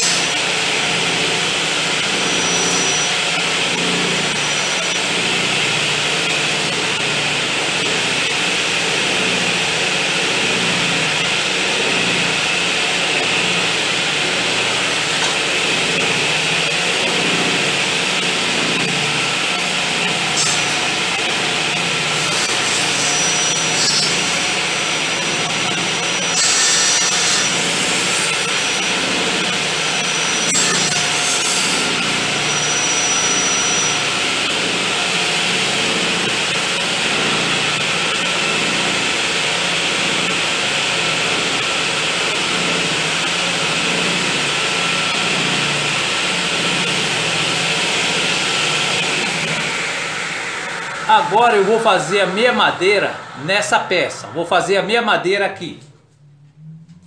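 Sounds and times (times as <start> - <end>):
saw blade cutting wood: 0.0 - 1.0, 1.8 - 7.2, 14.4 - 34.1
table saw running: 0.0 - 55.6.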